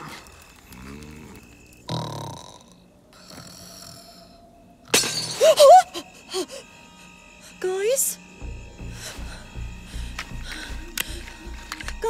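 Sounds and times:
cartoon character snoring: 0:00.8 - 0:04.4.

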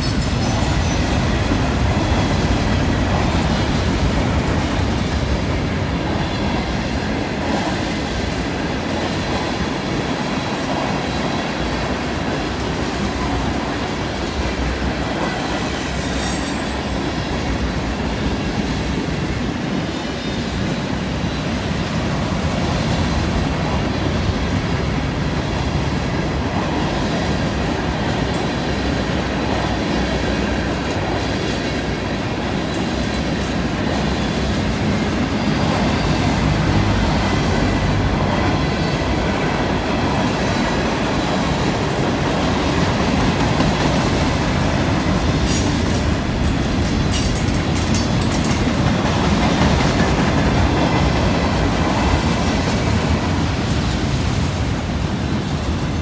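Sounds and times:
steel wheels rumbling on rail: 0:00.0 - 0:56.0
wheels clicking over rail joints: 0:40.6 - 0:53.8.

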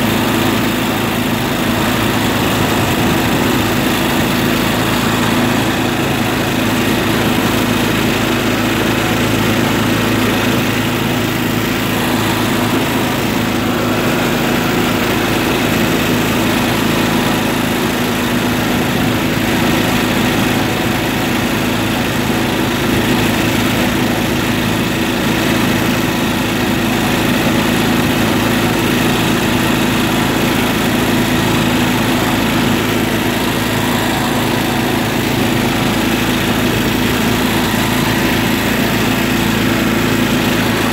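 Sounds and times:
tractor engine running: 0:00.0 - 0:40.9.

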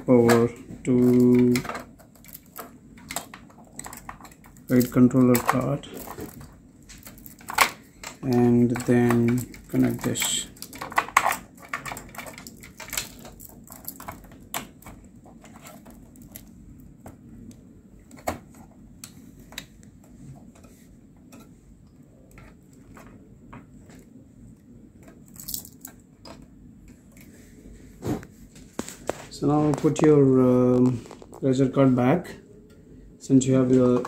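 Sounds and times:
low steady hum: 0:00.0 - 0:34.0
plastic cable connectors clicking: 0:00.2 - 0:19.8.

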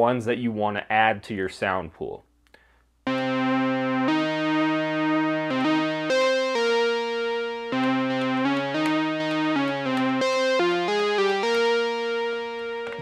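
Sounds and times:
synthesizer melody: 0:03.1 - 0:13.0.

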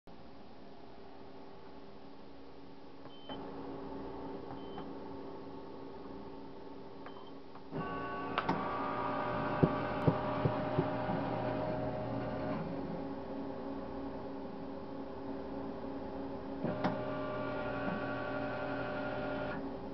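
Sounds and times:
steady electrical hum: 0:00.1 - 0:19.9
coffee machine running: 0:07.8 - 0:12.7, 0:16.6 - 0:19.6.

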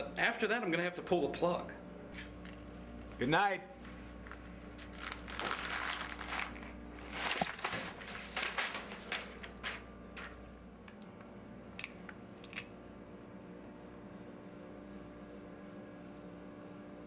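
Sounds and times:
rustling and crinkling handling: 0:02.2 - 0:10.4.

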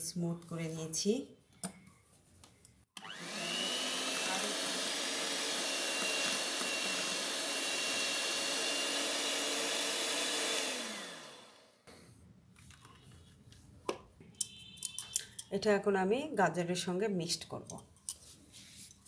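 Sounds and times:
electric hand mixer running: 0:03.0 - 0:11.8.

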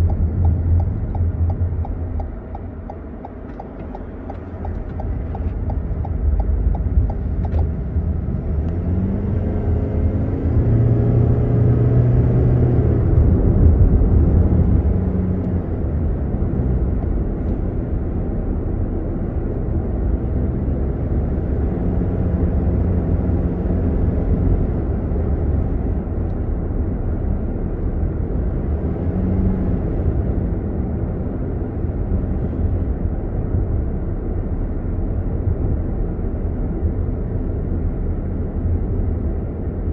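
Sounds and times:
car engine from inside cabin: 0:00.0 - 0:39.9
road rumble: 0:00.0 - 0:39.9.

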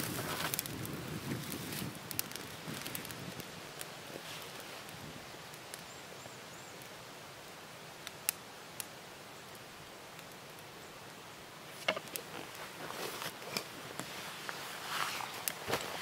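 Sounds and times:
clothing and grass rustling: 0:00.0 - 0:03.4, 0:04.0 - 0:05.0, 0:11.7 - 0:16.0
twigs snapping in fire: 0:00.0 - 0:05.9, 0:08.0 - 0:08.9, 0:11.7 - 0:16.0
campfire crackling: 0:00.0 - 0:16.0.

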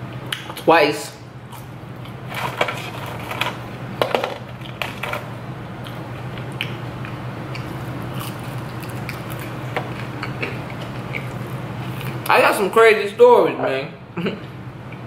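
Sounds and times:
steady low hum: 0:00.0 - 0:15.0
person chewing crunchy food: 0:01.5 - 0:03.4, 0:05.8 - 0:12.3.

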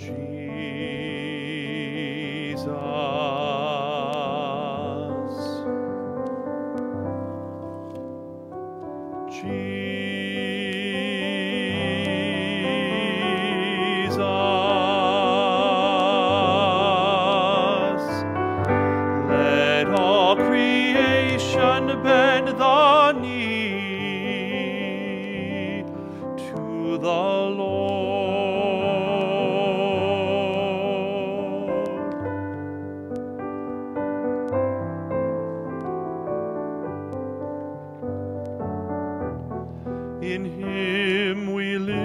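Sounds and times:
man singing hymn with vibrato: 0:00.0 - 0:05.9, 0:09.2 - 0:32.8, 0:40.0 - 0:42.0
keyboard chords: 0:00.0 - 0:42.0.

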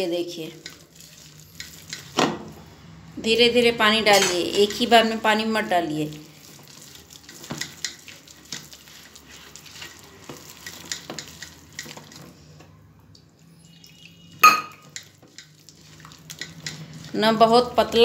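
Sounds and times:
batter being mixed by hand: 0:00.0 - 0:02.7, 0:04.1 - 0:12.5, 0:14.9 - 0:18.0.

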